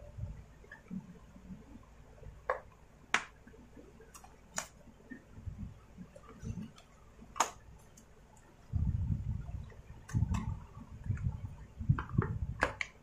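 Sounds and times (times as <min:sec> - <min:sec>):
plastic parts clicking and snapping: 0:06.2 - 0:08.5, 0:11.9 - 0:13.0.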